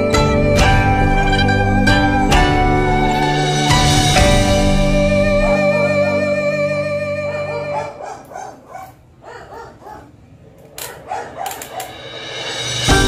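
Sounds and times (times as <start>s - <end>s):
background music: 0.0s - 8.0s, 11.7s - 13.0s
dog barking: 7.4s - 12.0s.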